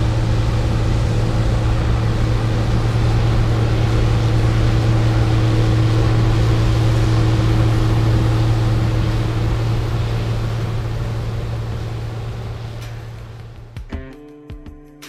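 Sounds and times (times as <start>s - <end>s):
combine harvester engine drone: 0.0s - 13.9s.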